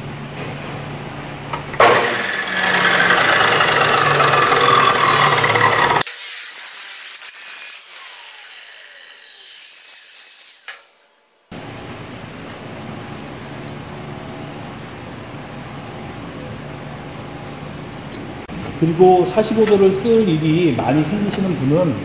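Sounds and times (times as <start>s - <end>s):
saw wheel whine spinning down: 1.8s - 6.1s
chop saw running: 1.8s - 11.2s
cutting disc grinding steel: 1.8s - 11.2s.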